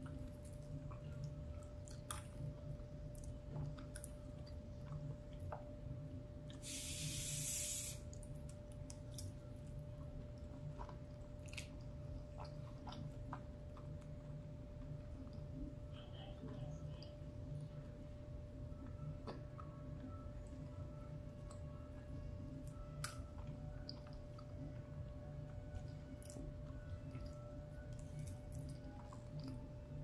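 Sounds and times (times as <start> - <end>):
chewing and mouth sounds: 0.0 - 5.8, 8.0 - 17.2, 22.6 - 30.0
faint steady hum: 0.0 - 30.0
short hiss: 6.6 - 8.0.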